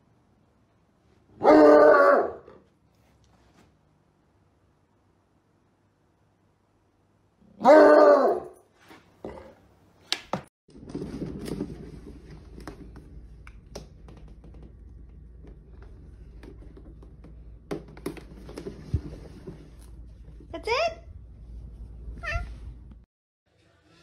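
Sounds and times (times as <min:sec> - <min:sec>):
cat exercise wheel rumbling: 0:10.7 - 0:20.6.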